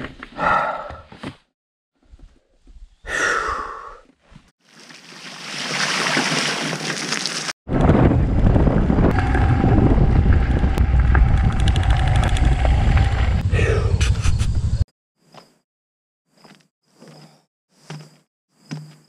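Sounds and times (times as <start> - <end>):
breathy sigh: 0.4 - 1.1, 3.1 - 4.0, 13.5 - 14.0
wind rumbling on microphone: 7.7 - 14.8.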